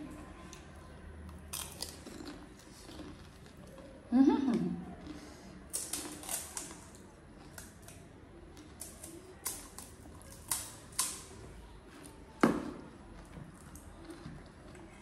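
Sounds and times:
crisp shells crunching while eating: 0.5s - 4.1s, 5.0s - 15.0s.

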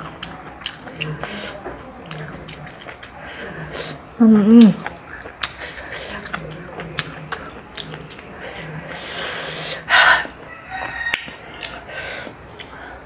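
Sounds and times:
soft mouth noises: 0.0s - 13.0s.

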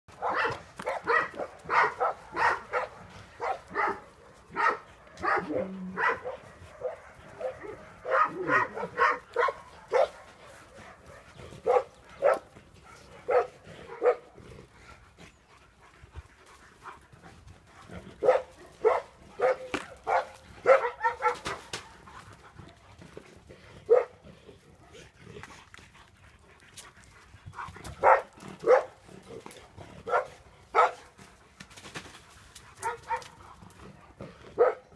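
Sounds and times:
dog barking: 0.1s - 14.3s, 18.2s - 22.0s, 23.9s - 24.2s, 28.0s - 29.0s, 30.0s - 31.1s, 32.8s - 33.4s, 34.6s - 34.9s.

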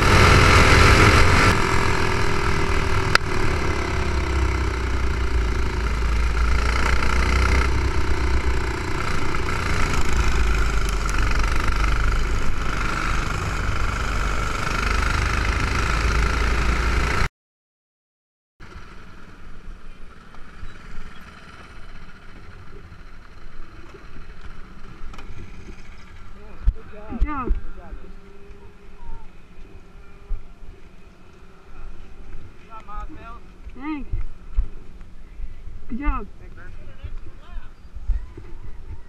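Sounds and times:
faint outdoor noise: 0.0s - 17.3s, 18.6s - 39.0s
kart engine running: 0.0s - 17.3s, 18.6s - 28.9s.

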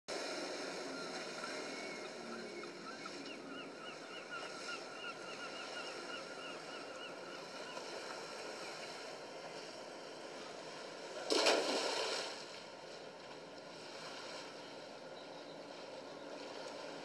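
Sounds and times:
boat engine rumble: 0.1s - 17.0s
water wash: 11.0s - 14.6s.

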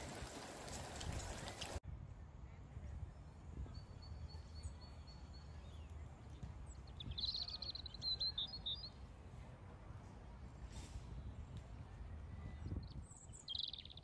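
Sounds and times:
rapid bird twittering: 12.8s - 14.0s.

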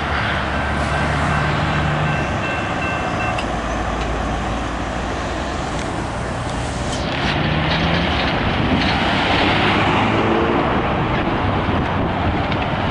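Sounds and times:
road traffic idling: 0.0s - 9.2s
freight train cars rumbling: 0.0s - 12.9s.

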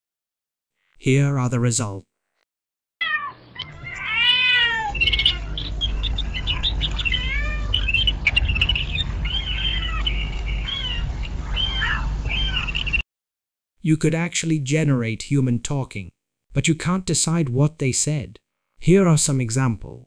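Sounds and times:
cat meowing: 3.0s - 8.0s, 9.2s - 12.8s
birds chirping: 3.1s - 13.0s
steady low rumble: 5.0s - 13.0s.

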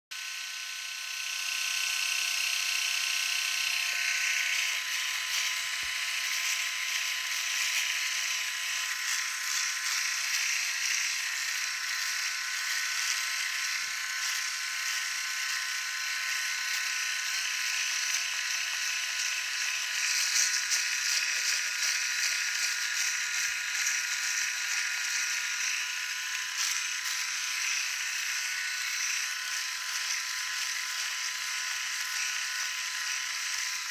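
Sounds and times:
electric shaver buzzing: 0.1s - 33.9s
shaver heads hissing over skin: 16.3s - 33.9s.

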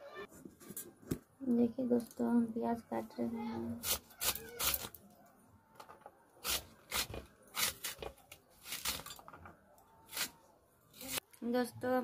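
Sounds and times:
onion being sliced on a blade: 3.8s - 5.0s, 6.4s - 9.2s, 10.1s - 11.2s.

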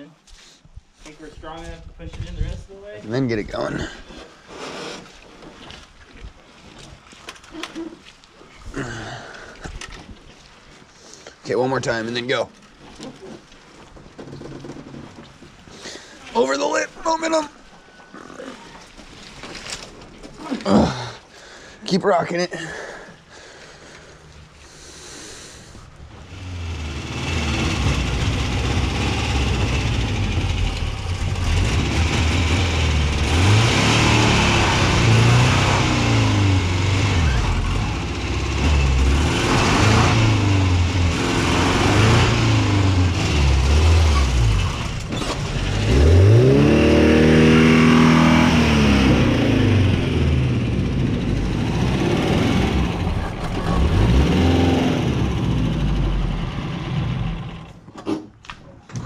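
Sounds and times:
car engine revving: 26.2s - 57.7s.

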